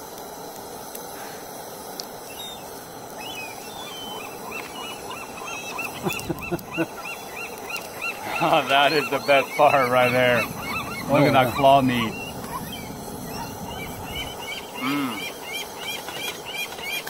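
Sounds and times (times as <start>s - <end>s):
faint outdoor hush: 0.3s - 17.0s
flock of birds calling: 3.2s - 17.0s.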